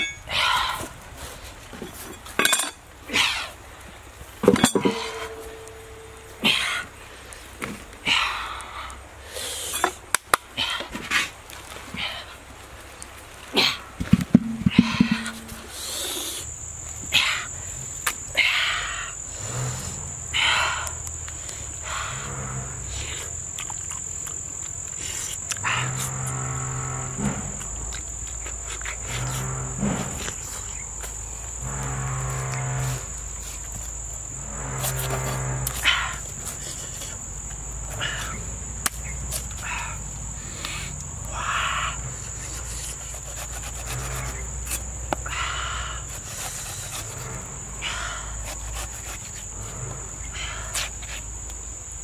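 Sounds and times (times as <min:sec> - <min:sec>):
insects trilling: 0:00.0 - 0:52.0
long low-pitched calls: 0:13.6 - 0:16.5, 0:17.1 - 0:23.5, 0:25.0 - 0:37.0.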